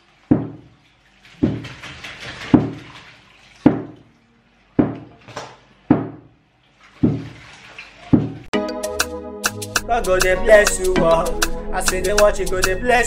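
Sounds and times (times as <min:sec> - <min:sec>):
tap water splashing into sink: 0:00.2 - 0:04.2, 0:04.8 - 0:08.5
sharp knocks: 0:00.3 - 0:00.6, 0:01.4 - 0:01.8, 0:02.5 - 0:02.9, 0:03.7 - 0:04.0, 0:04.8 - 0:05.2, 0:05.9 - 0:06.3, 0:07.0 - 0:07.4.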